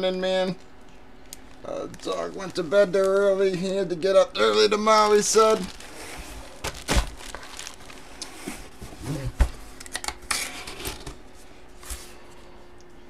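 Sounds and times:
cardboard packaging rustling: 1.4s - 4.1s, 4.8s - 11.2s.

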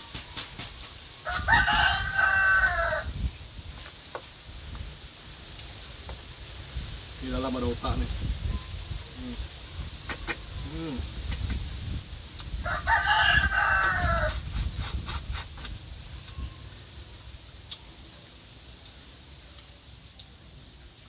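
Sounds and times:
rooster crowing: 1.2s - 3.2s, 12.6s - 14.5s.

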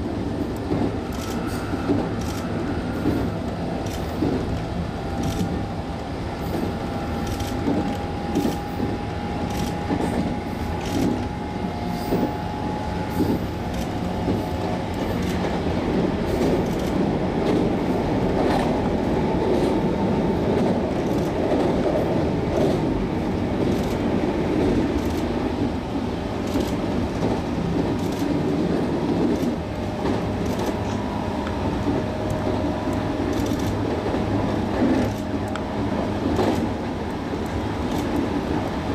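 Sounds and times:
electric train rumbling at speed: 0.0s - 38.9s
wheels clicking over rail joints: 26.4s - 31.1s.

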